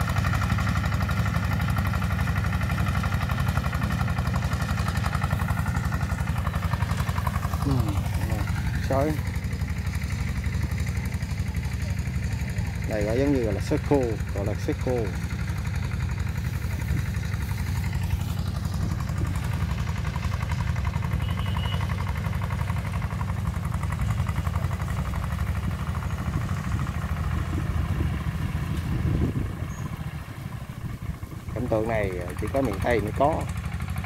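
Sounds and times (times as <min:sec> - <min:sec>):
tractor engine rumbling: 0:00.0 - 0:34.0.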